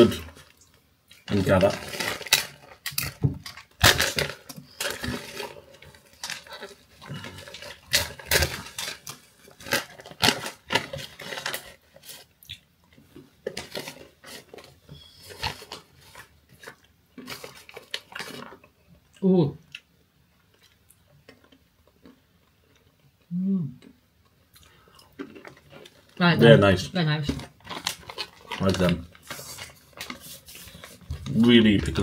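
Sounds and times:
plastic bag crinkling: 0.0s - 12.4s, 13.0s - 18.7s, 25.2s - 32.0s.

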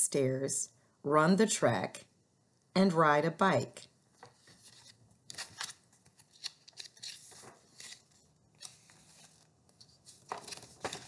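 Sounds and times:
book pages rustling: 4.2s - 11.0s.

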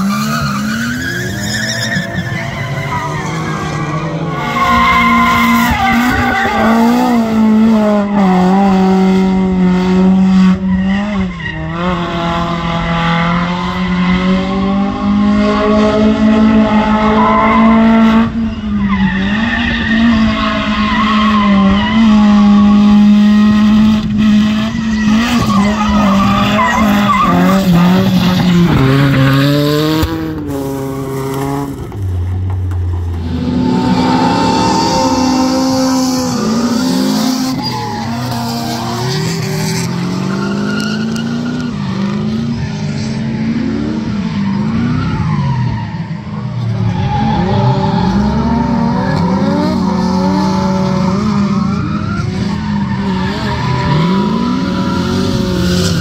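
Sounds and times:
car engine revving: 19.3s - 45.4s.

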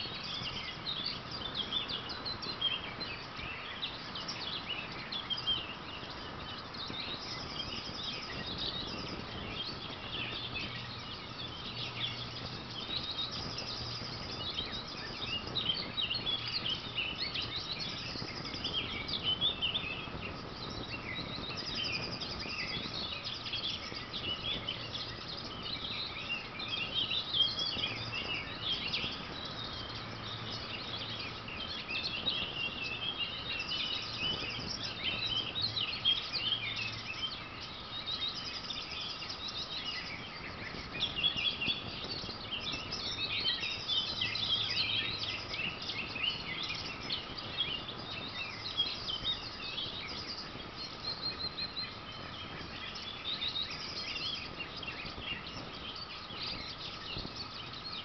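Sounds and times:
songbirds chorus: 0.0s - 58.0s.

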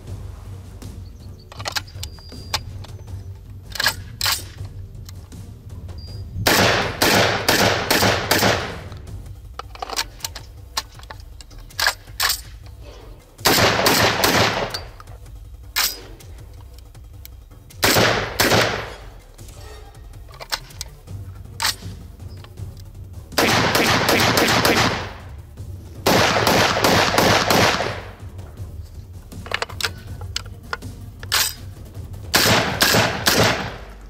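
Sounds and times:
metallic clicks of gun action: 1.4s - 5.4s, 6.5s - 23.0s, 28.6s - 34.0s
shotgun firing: 6.4s - 8.9s, 13.4s - 14.9s, 17.8s - 19.1s, 23.4s - 25.2s, 26.0s - 28.2s, 32.3s - 34.0s.

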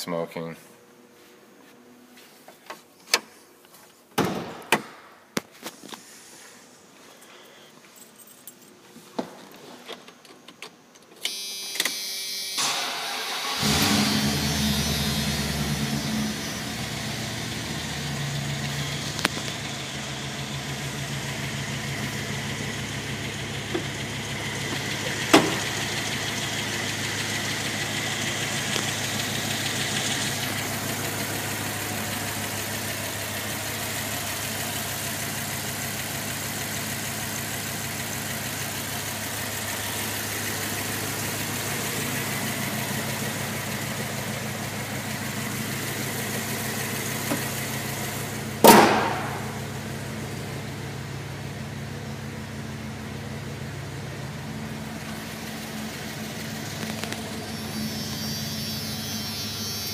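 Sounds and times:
engine starting and idling: 12.5s - 59.9s.

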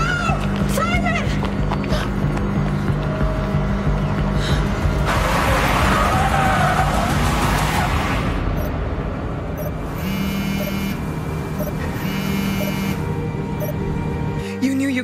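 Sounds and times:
tyres rushing on road: 2.4s - 9.7s
long electronic tones: 9.6s - 13.8s.

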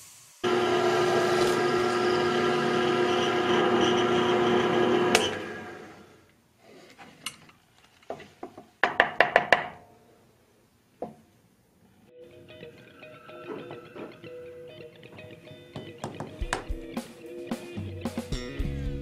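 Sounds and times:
drill press motor whining: 0.4s - 6.2s
wooden block knocking on table: 15.8s - 16.7s.

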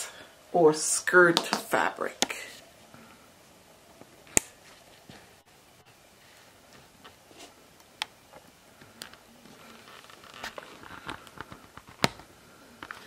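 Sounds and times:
fabric rustling: 9.1s - 12.0s.

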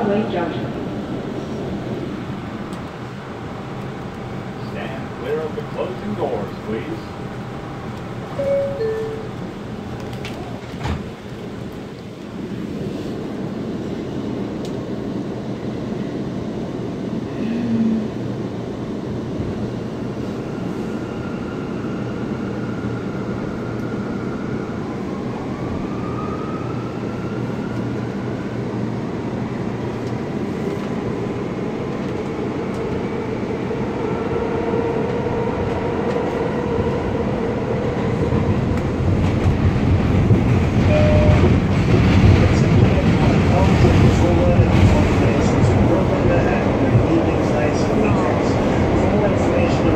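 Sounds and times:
two-note door chime: 8.4s - 9.3s.

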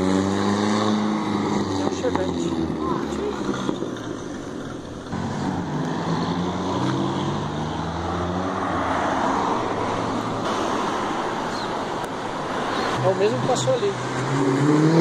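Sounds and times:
car engine accelerating: 0.0s - 15.0s
tyre and road noise: 0.0s - 15.0s.

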